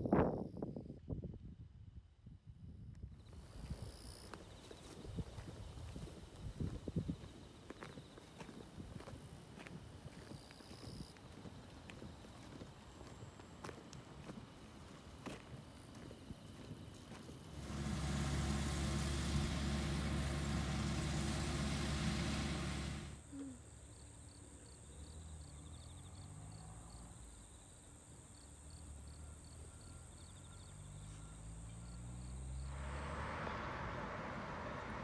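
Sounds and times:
crickets chirping: 3.2s - 21.7s, 23.2s - 35.0s
distant harvester engine: 17.4s - 23.5s
loud steady low hum: 17.6s - 23.2s.

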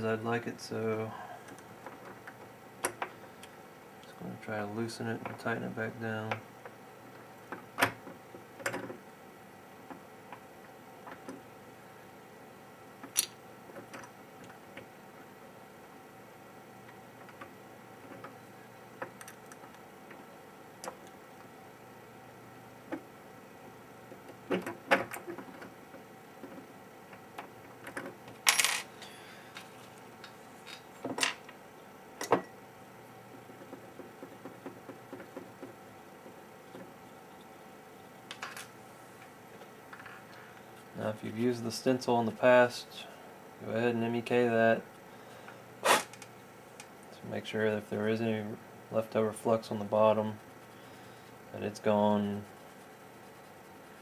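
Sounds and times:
small clicks of metal parts: 13.0s - 14.9s, 19.0s - 20.2s.

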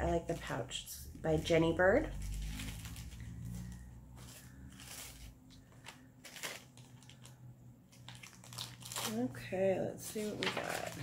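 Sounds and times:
low steady hum: 0.0s - 11.0s
paper being handled: 2.2s - 7.3s, 10.1s - 11.0s.

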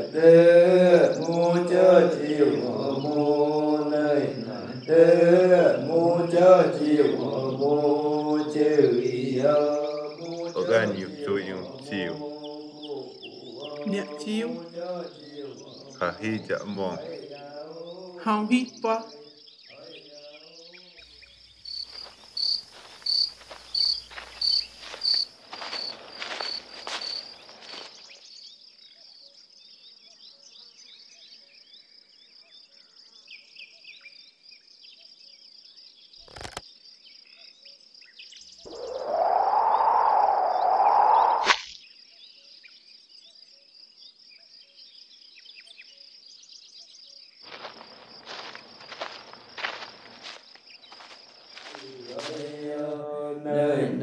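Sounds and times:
cricket chirping: 0.0s - 54.0s
high insect chorus: 0.0s - 54.0s
footsteps through undergrowth: 21.6s - 28.4s, 47.4s - 52.9s
bird chirps: 36.0s - 43.4s
arrow whoosh: 38.7s - 41.7s
arrow hitting target: 41.4s - 41.7s.

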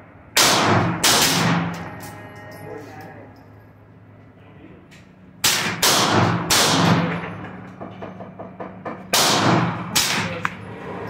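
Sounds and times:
gunshots with ringing echo: 0.4s - 1.9s, 5.4s - 7.4s, 9.1s - 10.4s.

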